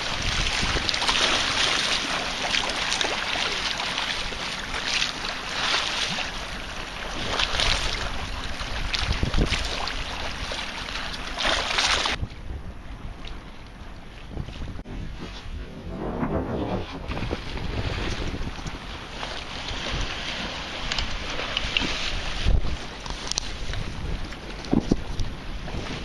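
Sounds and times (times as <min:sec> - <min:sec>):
wind blowing on microphone: 0:00.0 - 0:01.6, 0:07.6 - 0:10.5, 0:12.0 - 0:26.0
sea water splashing against wall: 0:00.0 - 0:12.3, 0:16.6 - 0:26.0.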